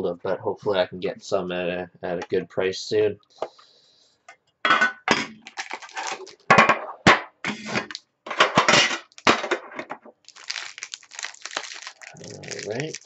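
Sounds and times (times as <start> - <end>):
foil pack crinkling: 5.4 - 6.5, 10.2 - 13.0.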